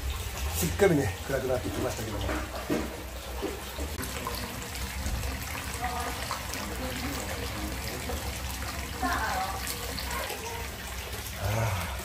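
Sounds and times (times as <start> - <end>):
water pouring into rock bath: 0.0 - 12.0.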